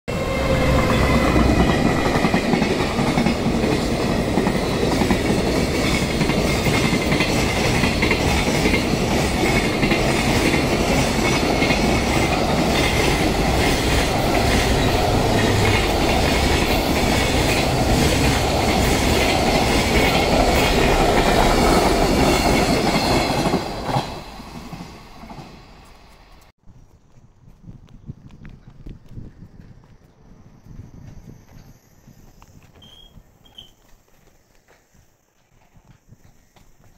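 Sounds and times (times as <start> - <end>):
high locomotive whine: 0.1 - 26.5, 28.4 - 36.9
train wheels rumbling on rail: 0.1 - 26.5, 28.1 - 33.8
wheels clicking over rail joints: 0.9 - 26.5.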